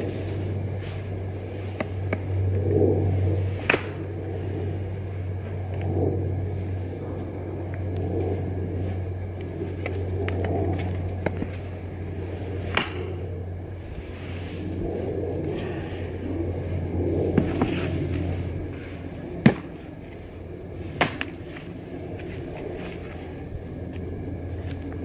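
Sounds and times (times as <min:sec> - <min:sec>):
low rumble: 0:00.0 - 0:25.0
knife chopping wood: 0:12.7 - 0:13.1, 0:19.5 - 0:19.7.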